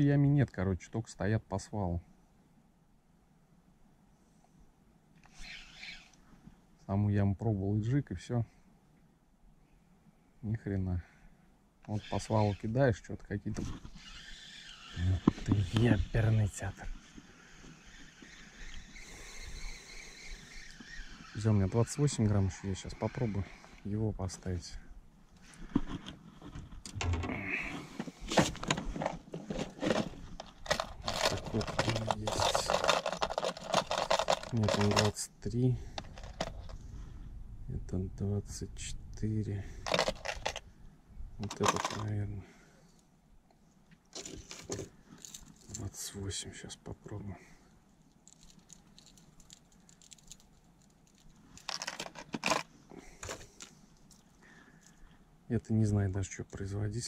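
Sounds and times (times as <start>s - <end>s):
plastic lures clattering in box: 28.6s - 35.2s, 36.0s - 36.7s, 39.8s - 40.6s, 41.4s - 42.1s, 51.1s - 54.2s.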